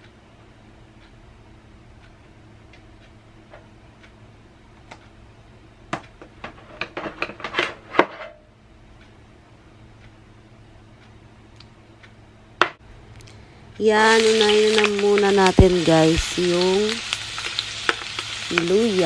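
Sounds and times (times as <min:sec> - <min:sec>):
faint ticking: 0:00.0 - 0:05.3.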